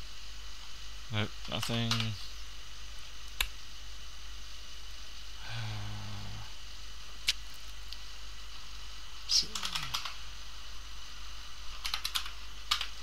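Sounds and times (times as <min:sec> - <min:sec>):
steady electrical hum: 0:00.0 - 0:13.0
man humming hmm: 0:05.4 - 0:06.6.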